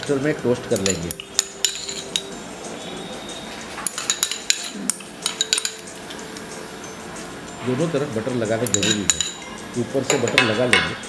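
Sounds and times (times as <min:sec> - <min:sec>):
knife clinking on metal: 0:00.7 - 0:02.4, 0:03.8 - 0:06.1, 0:08.5 - 0:11.0.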